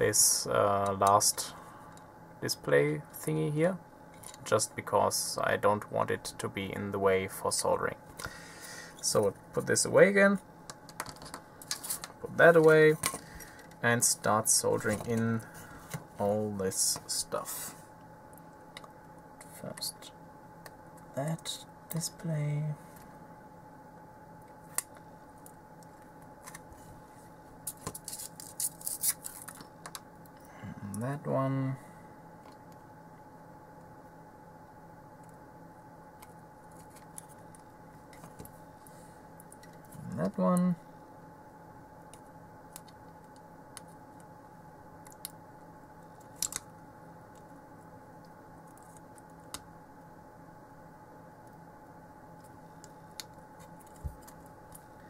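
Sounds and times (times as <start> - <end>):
faint steady hum: 0.0 - 55.0
electronic components clicking: 42.0 - 44.3, 46.2 - 46.7.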